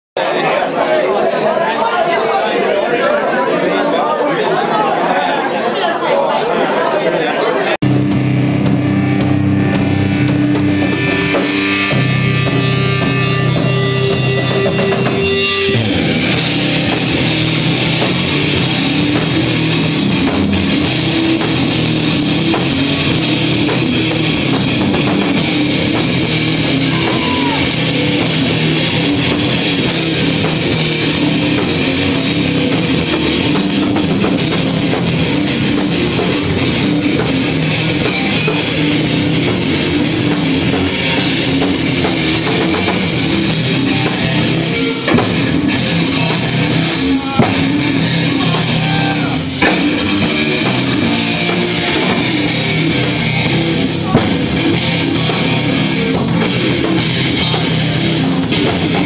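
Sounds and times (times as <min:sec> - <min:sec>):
live rock band playing: 0:07.8 - 0:59.0
held guitar notes ringing: 0:34.4 - 0:59.0.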